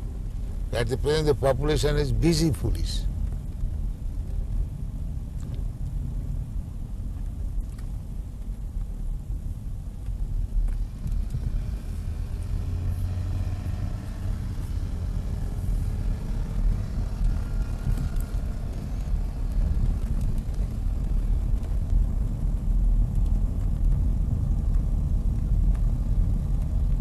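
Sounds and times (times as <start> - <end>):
car engine and tyres rumbling: 0.0 - 27.0
low hum: 9.2 - 27.0.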